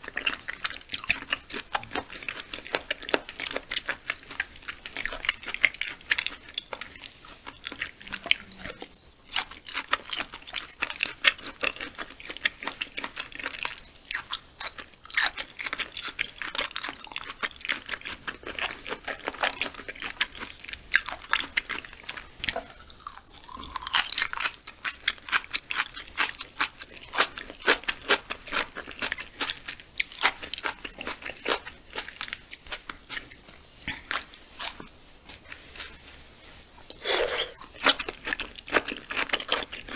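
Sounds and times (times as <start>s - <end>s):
wet chewing clicks and smacks: 0.0s - 34.4s.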